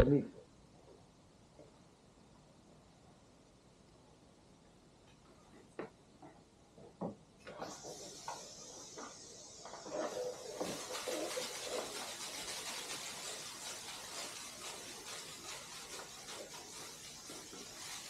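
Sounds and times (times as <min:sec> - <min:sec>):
hose spray hissing on pavement: 0:07.5 - 0:18.0.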